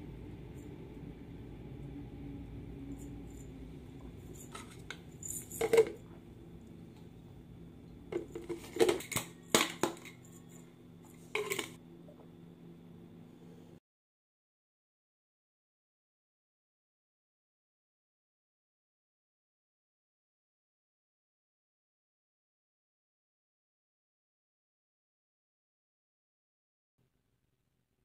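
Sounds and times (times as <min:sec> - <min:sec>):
steady low hum: 0:00.0 - 0:13.8
objects clinking on a counter: 0:04.3 - 0:06.1, 0:08.1 - 0:11.8.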